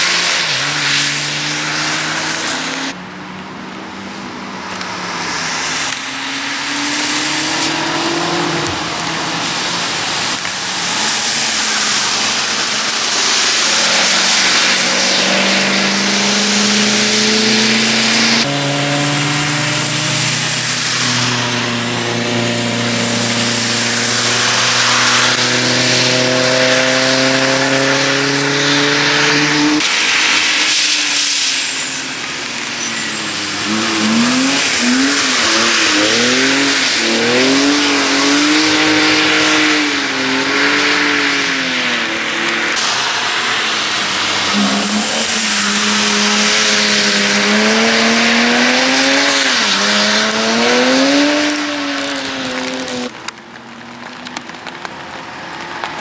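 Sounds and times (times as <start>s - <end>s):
car engines accelerating: 0.0s - 56.0s
tyres hissing on wet asphalt: 0.0s - 56.0s.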